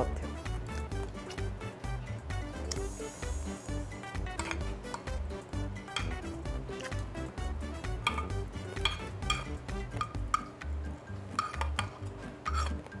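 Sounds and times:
background music with low beat: 0.0 - 13.0
metal spoon scraping bowl: 4.3 - 5.1, 8.0 - 10.5, 11.3 - 12.9.

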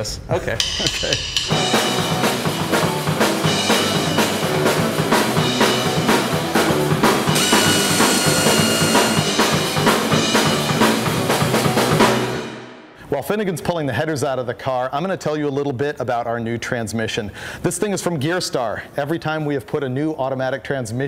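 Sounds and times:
band music with drum beat: 0.6 - 12.6.

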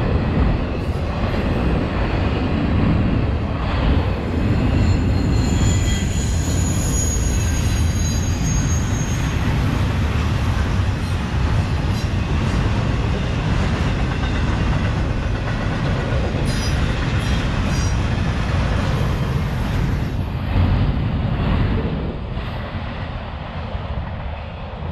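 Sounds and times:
train wheels rumbling on rail: 0.0 - 24.9
high wheel squeal: 4.5 - 9.6.

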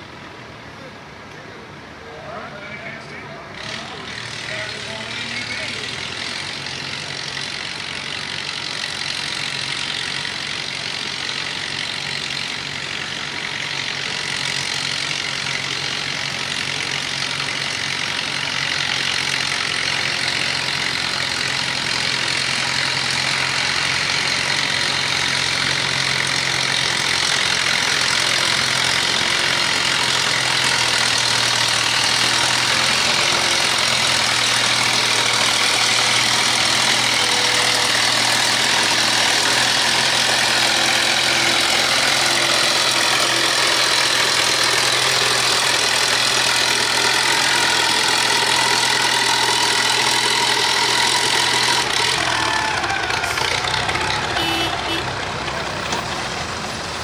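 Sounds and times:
tractor engine under load: 0.0 - 57.0.

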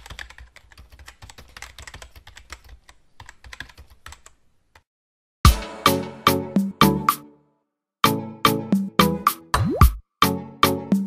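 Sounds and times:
fast typing on laptop keyboard: 0.0 - 4.9
music with loud hit: 5.5 - 6.1.

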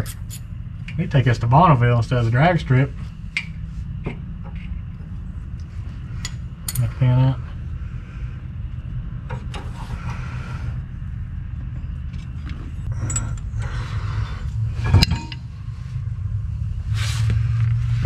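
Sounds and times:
steady low hum: 0.0 - 18.0
metal clicks and clinks: 13.0 - 13.5.

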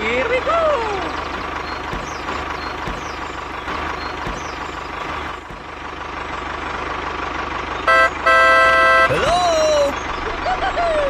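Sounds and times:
tractor engine running: 0.0 - 11.0
horn tooting: 7.8 - 9.6.

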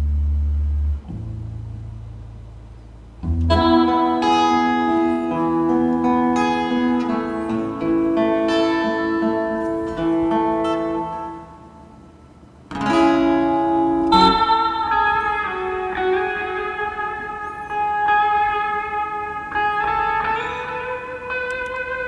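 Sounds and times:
sustained notes over low bass: 0.0 - 4.1, 13.8 - 15.9.

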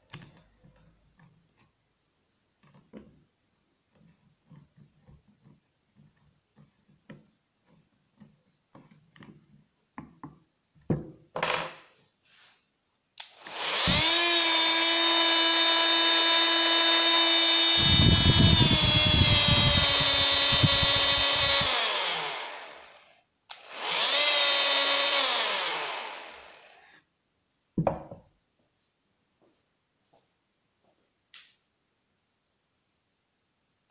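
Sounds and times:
tool set down on wooden bench: 10.8 - 11.9, 27.8 - 28.3
oscillating multi-tool buzzing: 13.3 - 26.9.

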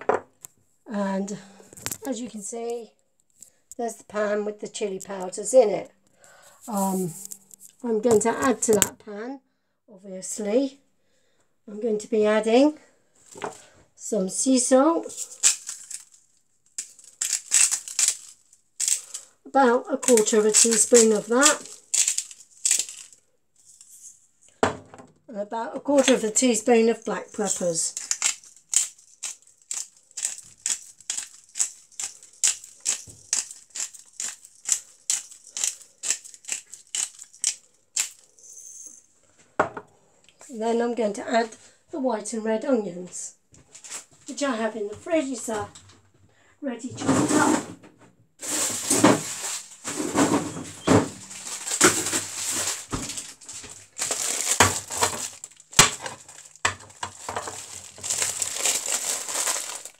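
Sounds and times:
plastic bag crinkling: 6.3 - 8.9, 15.0 - 24.2, 25.8 - 38.4, 48.4 - 59.9
pepper mill grinding: 15.0 - 19.3, 19.9 - 24.0, 25.9 - 38.6, 48.4 - 59.9.

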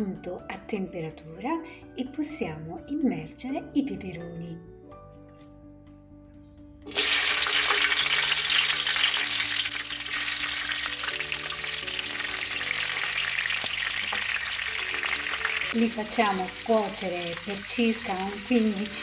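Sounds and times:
peppers sizzling in hot oil: 6.9 - 19.0.

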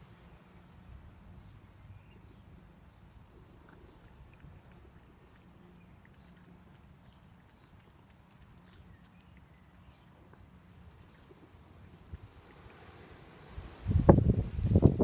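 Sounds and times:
cat lapping milk: 3.2 - 13.4.

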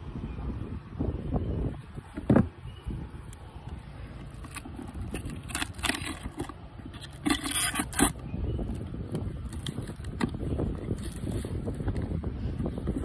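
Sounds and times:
tear strip ripping cardboard: 4.4 - 8.2.

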